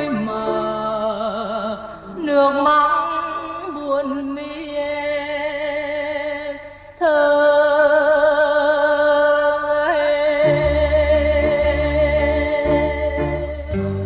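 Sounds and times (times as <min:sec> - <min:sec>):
woman singing ballad: 0:00.0 - 0:14.0
band accompaniment: 0:10.5 - 0:14.0.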